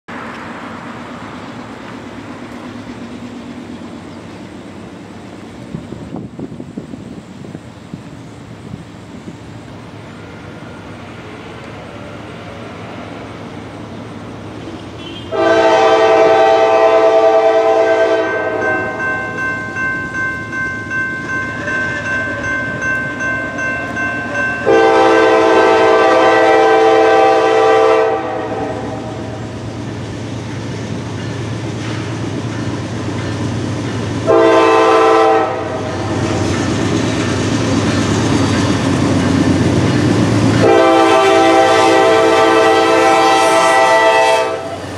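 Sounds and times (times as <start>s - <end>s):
train engine and wheel rumble: 0.1s - 44.9s
locomotive air horn blasts: 15.0s - 19.0s, 24.6s - 29.4s, 34.2s - 36.0s, 40.6s - 44.8s
crossing warning bell ringing: 15.0s - 27.3s, 28.4s - 44.3s.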